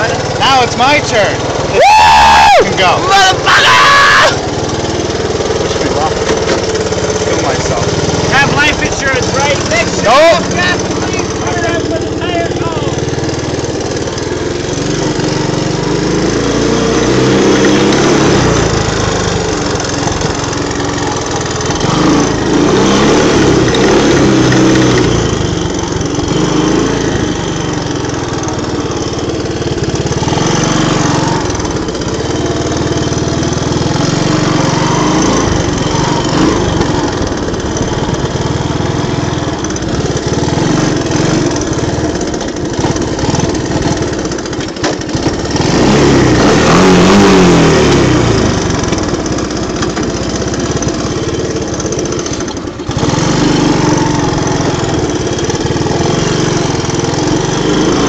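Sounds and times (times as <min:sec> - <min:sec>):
small engine revving: 0:00.0 - 0:58.0.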